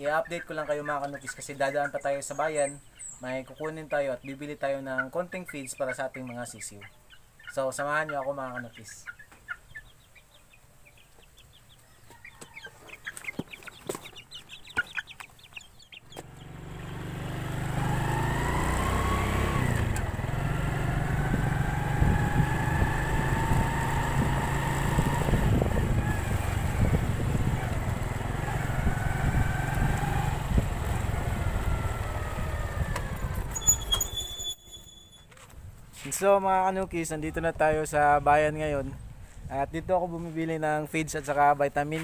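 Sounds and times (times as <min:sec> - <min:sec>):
chicks peeping: 0:00.0 - 0:34.2
motorcycle engine running: 0:16.1 - 0:34.2
wind noise: 0:21.0 - 0:28.0, 0:28.6 - 0:34.2.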